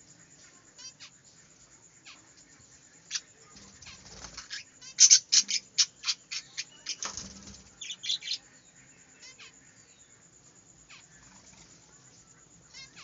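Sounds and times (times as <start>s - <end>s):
budgerigars chirping: 3.1s - 8.4s
wing flutters: 3.4s - 4.9s, 6.9s - 8.0s.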